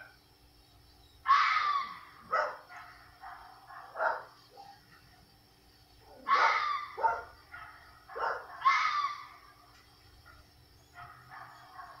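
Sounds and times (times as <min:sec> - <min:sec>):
fox calling: 0:06.1 - 0:09.4.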